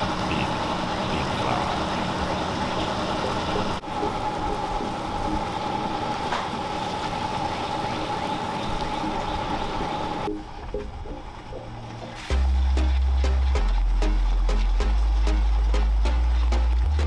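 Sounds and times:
gas burner hiss and hum: 0.0s - 17.0s.

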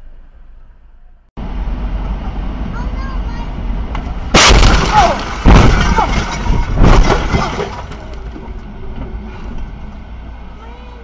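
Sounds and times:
car crash impacts: 4.0s - 8.4s.

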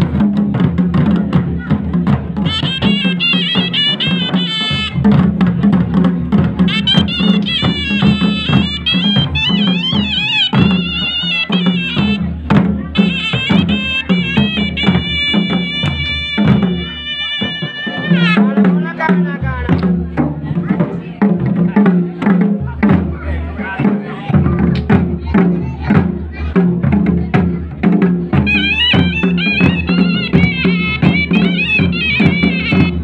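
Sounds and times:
drums beating steady rhythm: 0.0s - 33.0s
wavering wind instrument melody: 2.4s - 5.2s, 6.6s - 19.0s, 28.4s - 33.0s.

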